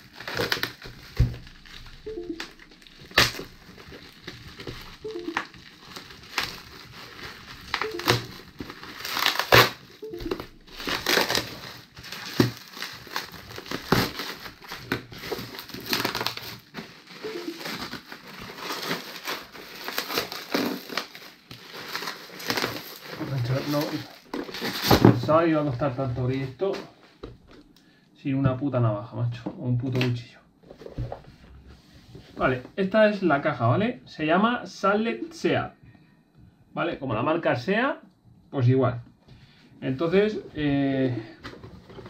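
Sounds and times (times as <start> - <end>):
bubble wrap crinkling and crackling: 0.0 - 26.5, 40.0 - 42.0.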